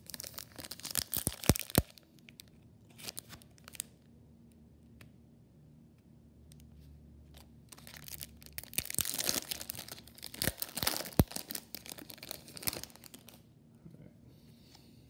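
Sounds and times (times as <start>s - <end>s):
foil wrapper tearing and crinkling: 0.0s - 2.0s, 7.7s - 13.4s.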